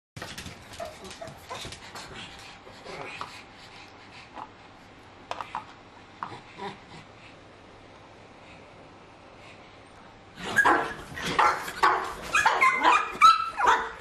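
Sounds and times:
dogs whimpering: 10.4s - 14.0s.

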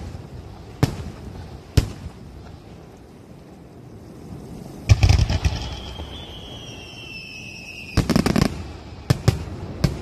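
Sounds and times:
fireworks bangs: 0.0s - 2.7s, 4.9s - 10.0s
high falling whistle: 5.4s - 8.1s.

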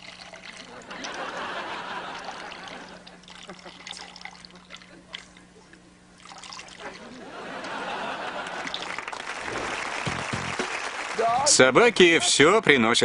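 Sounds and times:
faint trickle into toilet water: 0.0s - 1.2s, 2.1s - 5.5s, 6.2s - 6.9s
audience laughter: 0.7s - 3.9s, 6.8s - 10.2s
audience applause: 7.3s - 12.2s.

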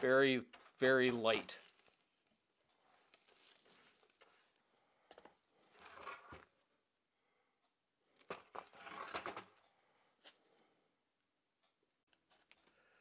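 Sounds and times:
faint rustling and scraping: 0.0s - 6.5s.

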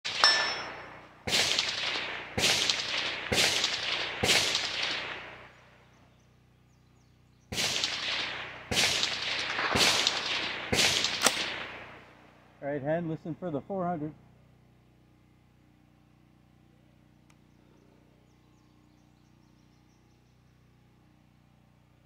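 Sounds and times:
rifle shots echoing: 0.1s - 5.9s, 7.5s - 12.5s.

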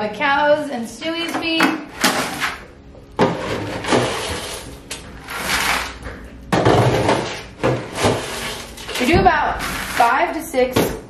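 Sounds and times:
scoop scraping metal bin: 2.0s - 10.4s.

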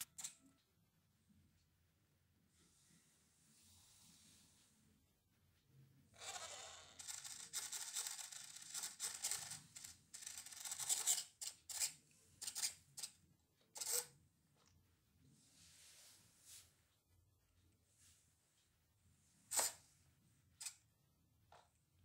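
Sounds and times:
toy car motors whirring: 6.2s - 13.1s, 13.8s - 14.1s, 19.5s - 19.8s.

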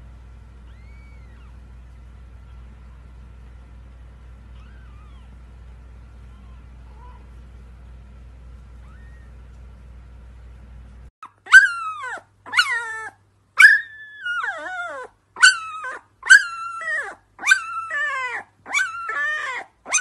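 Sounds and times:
puppy howling: 0.6s - 1.6s, 4.5s - 5.4s, 8.8s - 9.4s, 11.4s - 20.0s.

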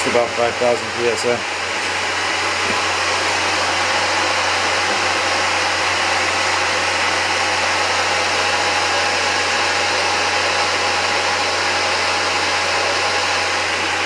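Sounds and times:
electric air compressor running: 0.0s - 14.0s.

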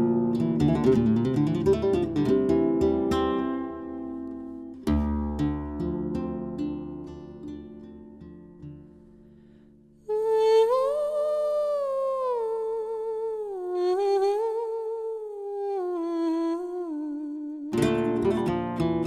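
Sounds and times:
flamenco guitar notes: 0.0s - 10.0s, 17.7s - 19.0s
woman singing with vibrato: 10.1s - 17.9s.

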